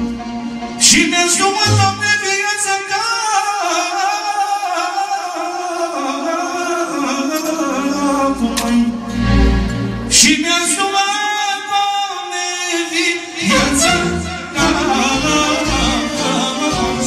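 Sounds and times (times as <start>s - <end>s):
man singing: 0.8s - 9.1s, 10.1s - 17.0s
band with bass drums and violin: 13.4s - 17.0s.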